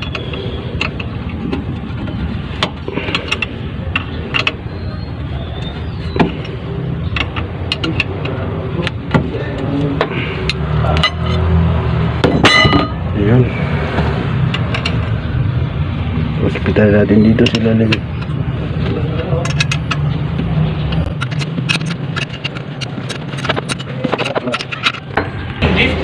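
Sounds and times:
wrench metallic clicks and clinks: 19.4s - 20.2s, 20.9s - 25.2s.

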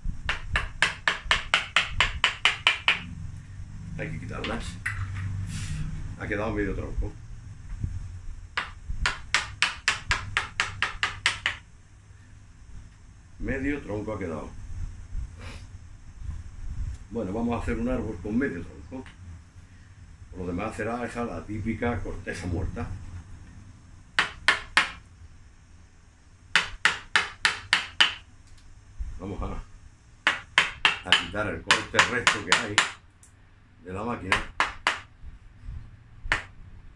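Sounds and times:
sharp hammer blows on wood: 0.2s - 3.1s.

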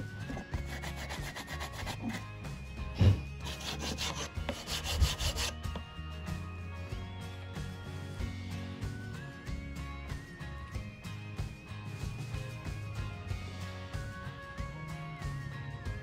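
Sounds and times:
background music: 0.0s - 16.0s
file rasping on wood: 0.3s - 2.2s, 3.4s - 5.6s.

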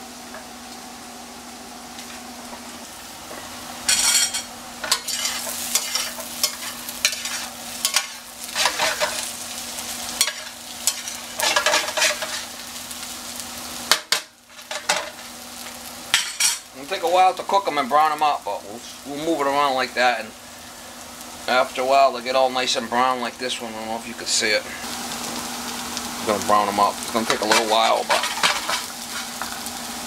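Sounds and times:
potatoes sizzling in pan: 0.0s - 30.0s
metal spatula scraping frying pan: 3.9s - 9.2s, 10.2s - 12.5s, 27.4s - 29.6s.

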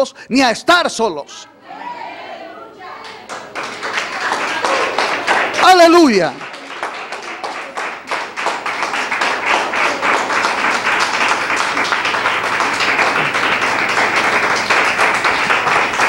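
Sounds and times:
crowd applauding: 3.0s - 16.0s.

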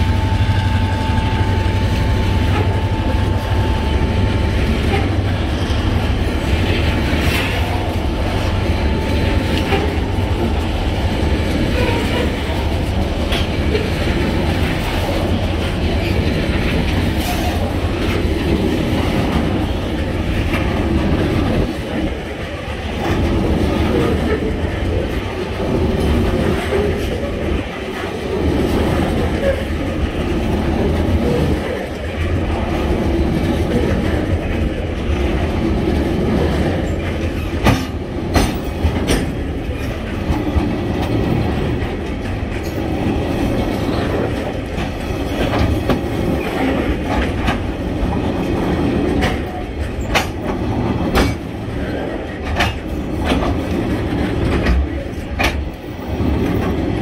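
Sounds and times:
clickety-clack over rail joints: 0.0s - 57.0s
train wheels rumbling on rails: 0.0s - 57.0s.

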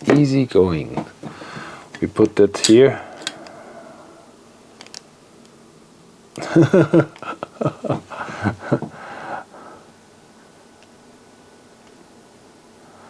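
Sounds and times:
man muttering: 2.6s - 3.3s, 6.4s - 9.8s.

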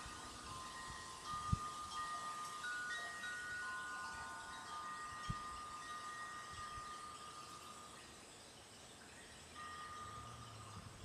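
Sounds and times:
wind chimes ringing: 0.0s - 11.0s.

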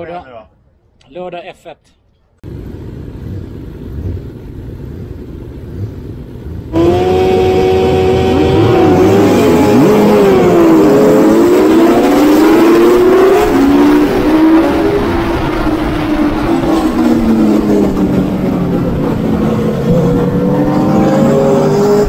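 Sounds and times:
motorcycle engines idling: 2.4s - 10.8s
motorcycle engines revving: 2.4s - 22.0s.

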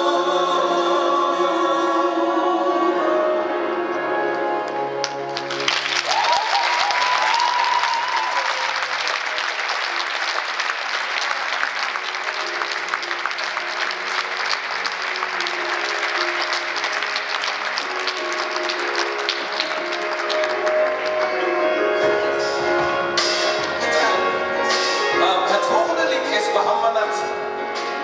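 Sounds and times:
audience applauding: 5.0s - 21.8s
high held cheer: 5.5s - 21.2s
soft band notes: 12.4s - 28.0s.

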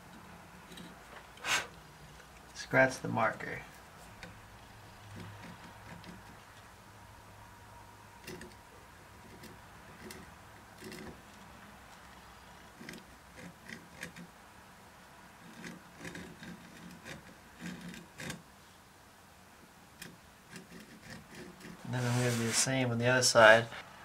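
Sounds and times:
scriber scratching metal: 0.0s - 6.8s, 8.1s - 14.3s, 15.4s - 18.5s, 20.0s - 22.9s.

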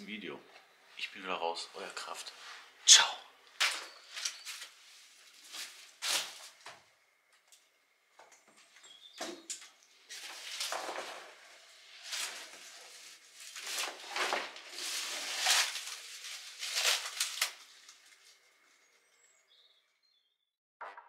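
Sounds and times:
clothing and shoes rustling: 3.7s - 6.6s, 10.1s - 18.2s.

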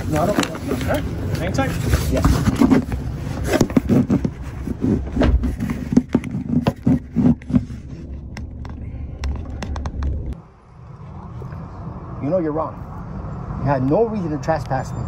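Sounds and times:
phone handling clicks and scrapes: 0.0s - 10.4s
low rumble: 7.0s - 13.6s.

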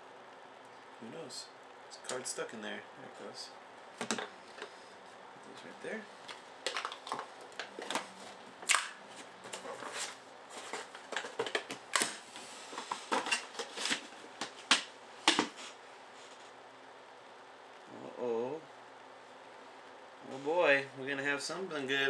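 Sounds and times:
paper rustling: 9.1s - 16.5s.

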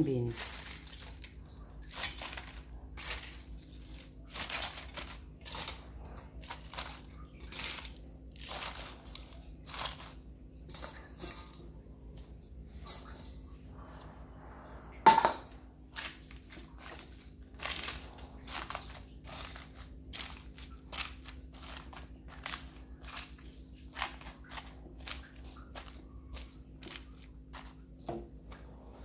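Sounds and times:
cabbage leaves crunching and squeaking: 0.1s - 10.2s, 15.9s - 27.7s.

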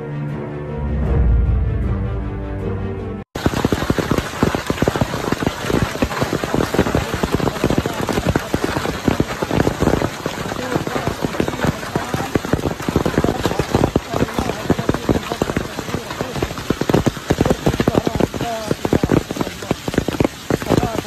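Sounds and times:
theme music: 0.0s - 3.3s
hail pelting down: 3.4s - 21.0s.

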